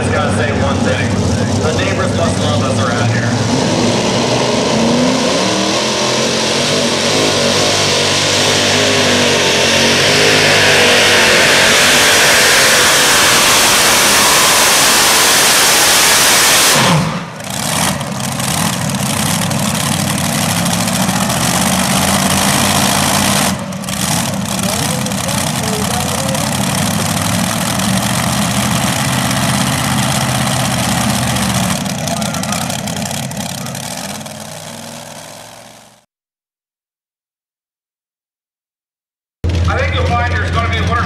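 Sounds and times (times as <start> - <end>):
pulling tractor engines roaring: 0.0 - 36.0, 39.4 - 41.0.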